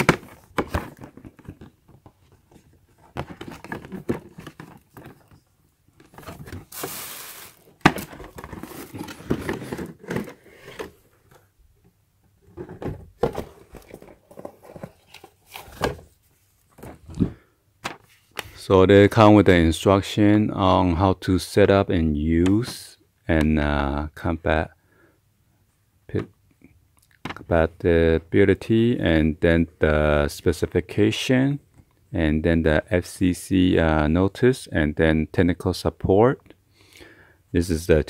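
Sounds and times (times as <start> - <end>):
cardboard rustling and knocking: 0.0 - 5.4, 6.0 - 11.4, 12.5 - 18.1.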